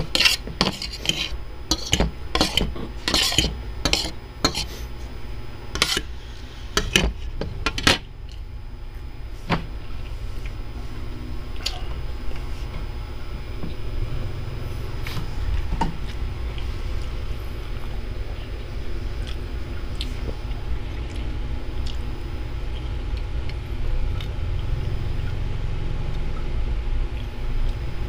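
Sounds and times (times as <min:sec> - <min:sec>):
cutlery scraping on ceramic plate: 0:00.0 - 0:04.7, 0:05.8 - 0:06.1
steady low hum: 0:00.0 - 0:28.0.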